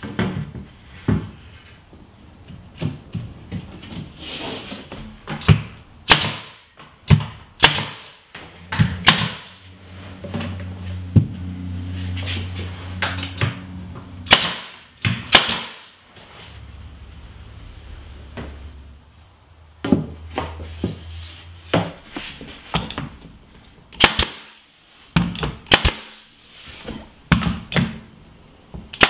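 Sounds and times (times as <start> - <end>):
nail gun shots: 6.0 - 6.7, 7.6 - 8.2, 8.8 - 9.6, 14.3 - 15.9, 24.0 - 24.6, 25.6 - 26.2
steady low hum: 8.2 - 29.0.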